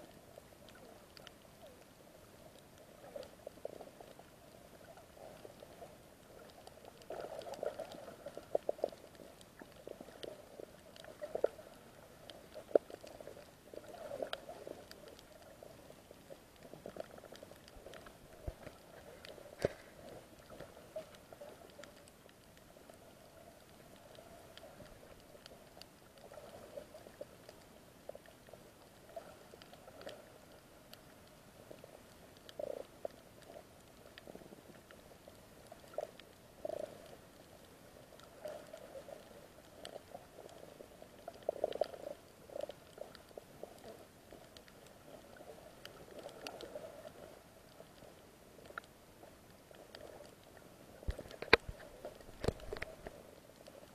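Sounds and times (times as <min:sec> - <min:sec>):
faint clicks: 0:00.0 - 0:53.9.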